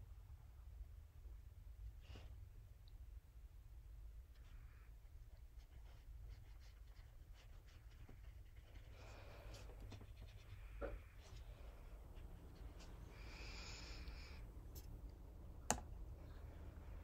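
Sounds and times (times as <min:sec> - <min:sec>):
low steady hum: 0:00.0 - 0:17.0
paintbrush brushing on paper: 0:04.4 - 0:13.1.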